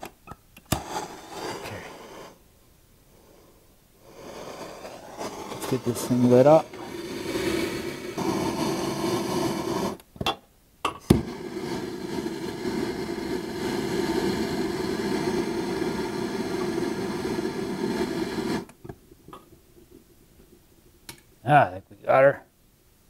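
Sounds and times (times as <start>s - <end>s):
gas torch flame hissing: 0.6s - 2.5s, 3.1s - 10.1s, 11.0s - 19.6s.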